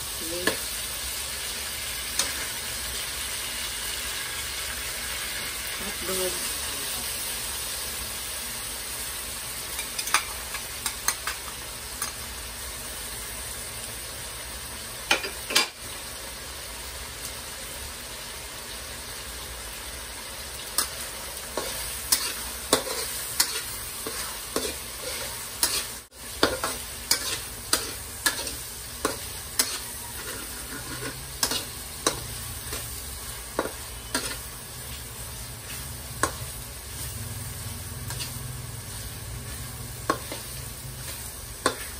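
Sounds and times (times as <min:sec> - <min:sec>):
meat sizzling in a wok: 0:00.0 - 0:41.9
spatula clinking and scraping pan: 0:09.7 - 0:12.2, 0:20.7 - 0:34.5, 0:38.0 - 0:38.5, 0:39.5 - 0:41.9.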